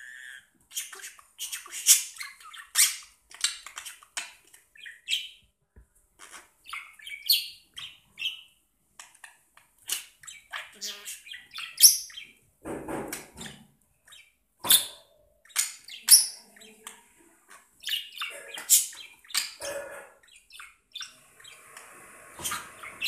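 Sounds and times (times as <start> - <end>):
budgerigar chirping: 0.0 - 5.4, 6.2 - 8.5, 9.8 - 12.4, 14.1 - 16.8, 17.8 - 21.7.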